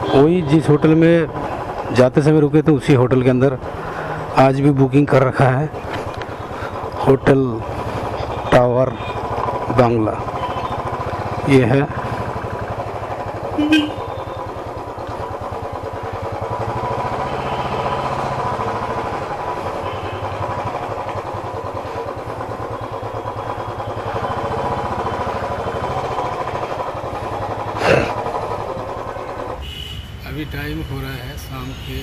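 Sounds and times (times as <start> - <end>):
motorcycle engine running: 0.0 - 31.9.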